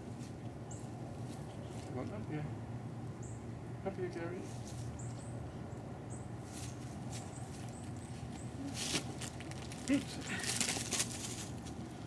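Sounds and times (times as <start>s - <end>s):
scuffling and rustling: 6.4s - 12.0s.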